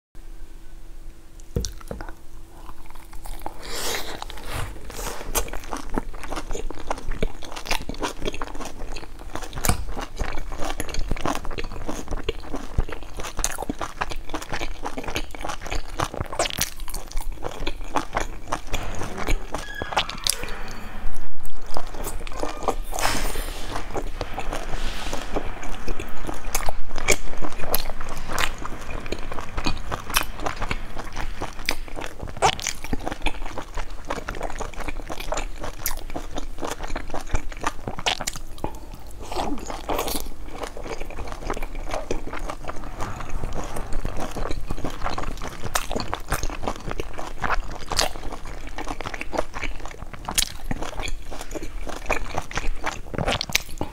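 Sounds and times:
wet chewing: 25.6 - 53.9.

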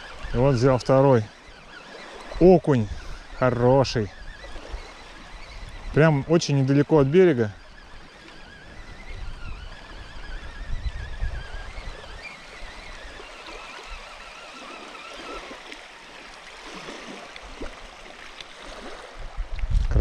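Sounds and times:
water splashing at shoreline: 0.0 - 19.7
thin wavering whine: 0.0 - 20.0
wind on microphone: 0.0 - 20.0.

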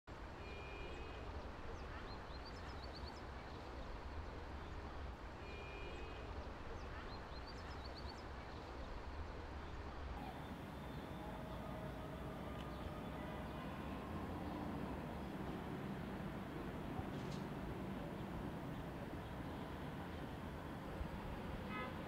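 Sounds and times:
birds chirping: 10.2 - 22.0.

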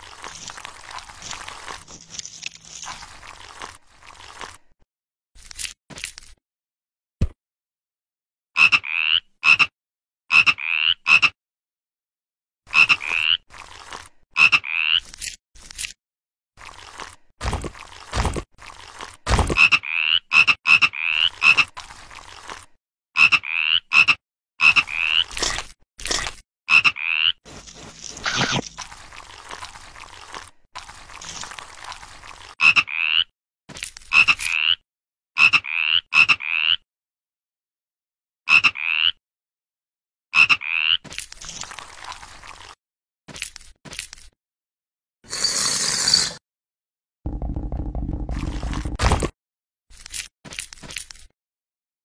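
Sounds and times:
frog croaking: 38.5 - 39.2.

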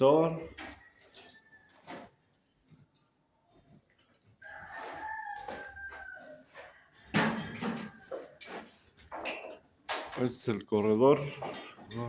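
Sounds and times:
rooster crowing: 4.4 - 8.4
loud knocks and clatters: 7.1 - 8.0.

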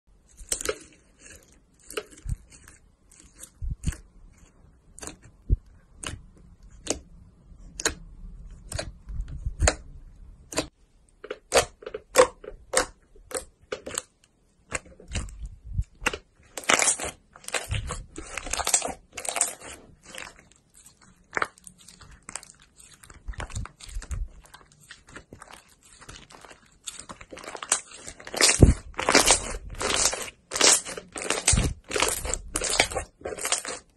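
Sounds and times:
slime clicking and popping: 23.3 - 33.9.

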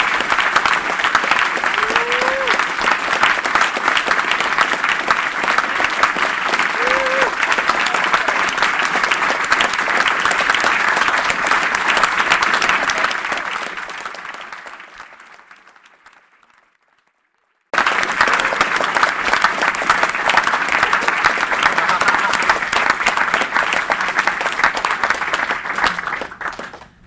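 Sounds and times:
audience applauding: 0.0 - 27.0.

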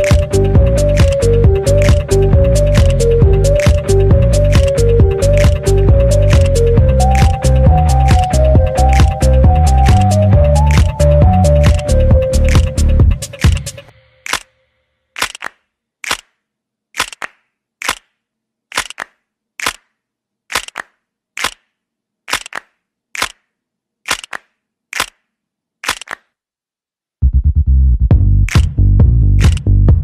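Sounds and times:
short sharp clicks: 15.2 - 16.3, 17.0 - 18.1, 18.7 - 19.9, 20.5 - 21.7, 22.3 - 23.4, 24.1 - 26.3.

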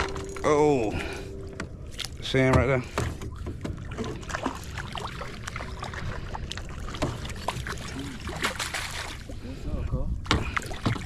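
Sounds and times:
water splashing against boat: 0.0 - 11.0
net and rod knocking on boat: 2.4 - 4.3.

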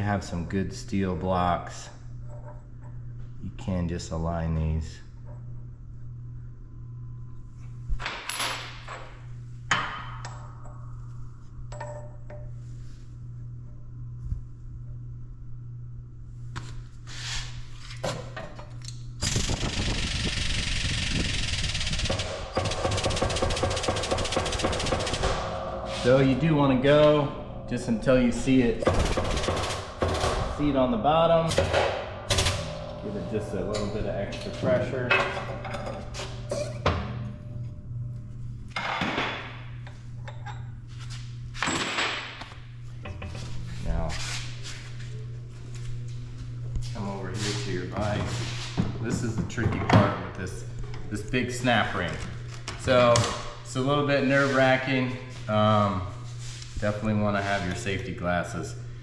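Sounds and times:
steady low hum: 0.0 - 59.0
hydraulic pump hissing and rattling: 19.2 - 22.4
metallic scrapes: 24.8 - 31.1.

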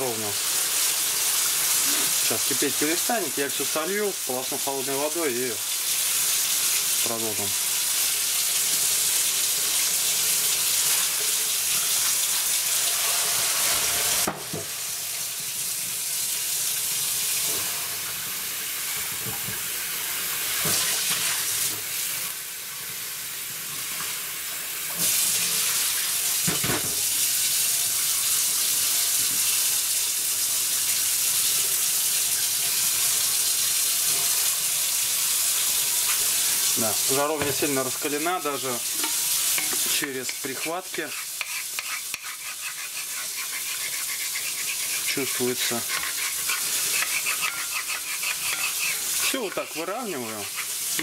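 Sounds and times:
tap water running into sink: 24.9 - 41.1.

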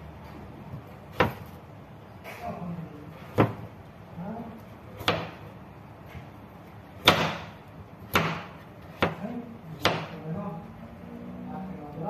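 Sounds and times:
knife chopping on cutting board: 1.1 - 1.6, 3.3 - 3.7, 5.0 - 5.4, 7.0 - 10.2.

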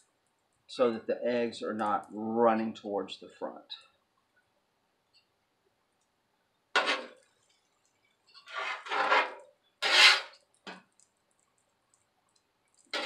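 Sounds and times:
metal spatula scraping griddle: 6.8 - 7.2, 8.4 - 10.4.

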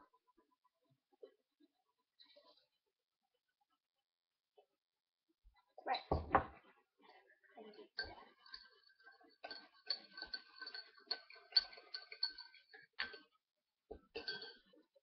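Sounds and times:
teaspoon clinking in a mug: 7.8 - 13.3, 13.9 - 15.0
spoon tapping mug: 9.4 - 13.2.

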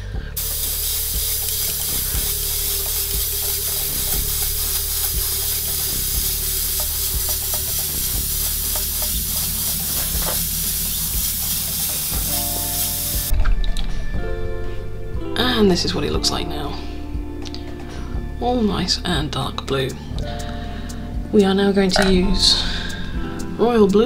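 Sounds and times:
airbrush spraying hiss: 0.4 - 13.3.

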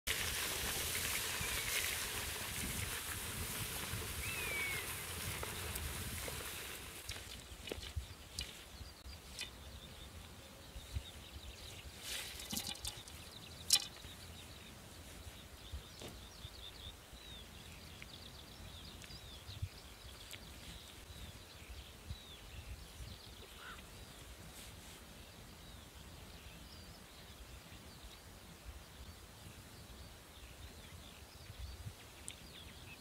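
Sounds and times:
small birds chirping: 3.9 - 6.1, 7.0 - 33.0
bow and arrows clicking: 12.3 - 14.1.

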